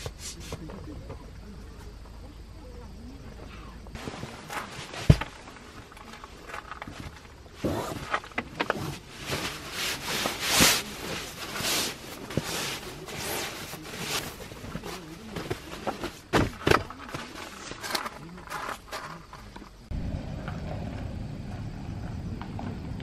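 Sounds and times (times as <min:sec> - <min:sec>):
soft handling thumps: 0:03.9 - 0:18.3
sleeping bag rustling: 0:04.0 - 0:19.1.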